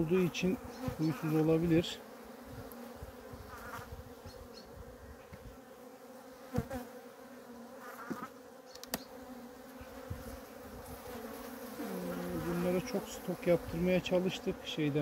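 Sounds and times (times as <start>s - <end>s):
honeybees buzzing: 0.0s - 15.0s.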